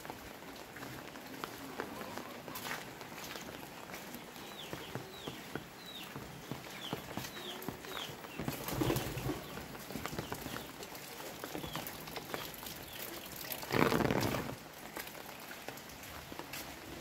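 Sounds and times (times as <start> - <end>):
footsteps on wet ground: 0.0 - 17.0
dripping ticks: 9.8 - 16.4.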